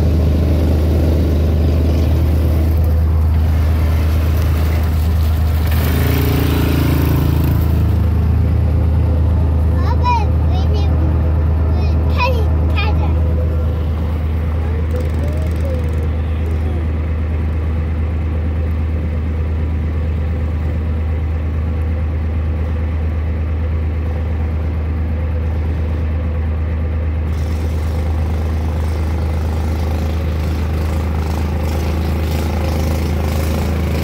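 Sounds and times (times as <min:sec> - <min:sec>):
mini bike engine: 0:00.0 - 0:18.2, 0:27.3 - 0:34.0
atv engine running: 0:00.0 - 0:34.0
deep engine idling: 0:00.0 - 0:34.0.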